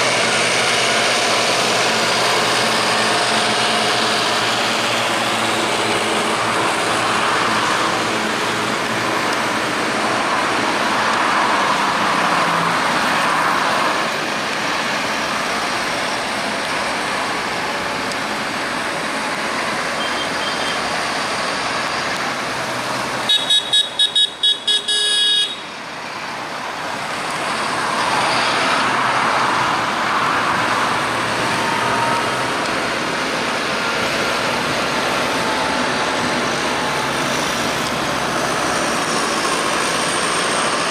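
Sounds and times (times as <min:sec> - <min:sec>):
tractors driving past: 0:00.0 - 0:40.9
vehicle horn tooting: 0:23.3 - 0:25.7.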